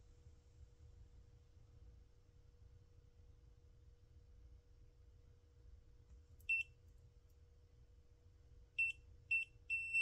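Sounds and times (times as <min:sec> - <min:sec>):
multimeter short high-pitched beeps: 0:08.8 - 0:10.0.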